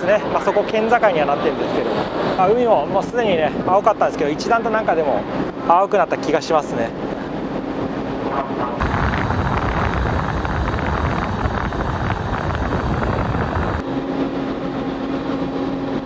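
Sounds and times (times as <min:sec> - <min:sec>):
ferry engines and machinery: 0:00.0 - 0:16.0
wind on microphone: 0:07.0 - 0:15.0
steady low hum: 0:07.0 - 0:16.0
dense loud noise: 0:08.8 - 0:13.8.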